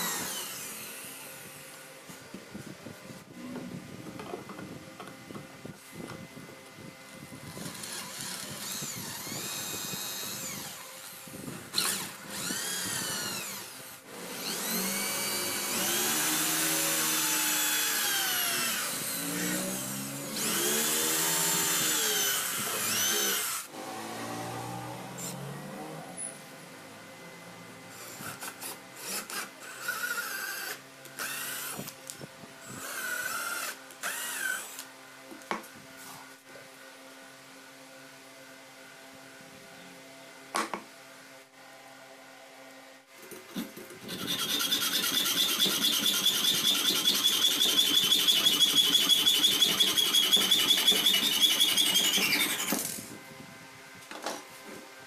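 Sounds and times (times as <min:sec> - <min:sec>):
power tool motor with fast rattle: 0:00.0 - 0:01.6, 0:07.5 - 0:25.4, 0:27.9 - 0:31.9, 0:32.6 - 0:34.9, 0:43.2 - 0:53.2
cordless drill motor revving: 0:00.0 - 0:01.8, 0:07.5 - 0:26.3, 0:27.9 - 0:31.9, 0:32.6 - 0:34.9, 0:44.0 - 0:53.2.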